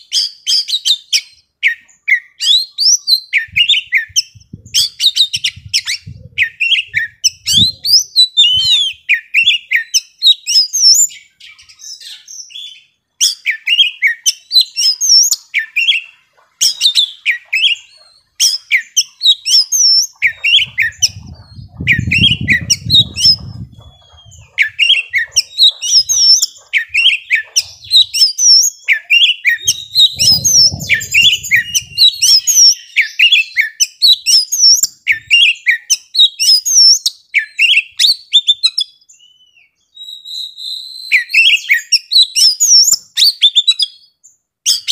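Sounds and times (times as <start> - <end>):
bird singing chirps and whistles: 0.0 - 44.9
low rumble: 21.0 - 24.6, 29.6 - 32.6.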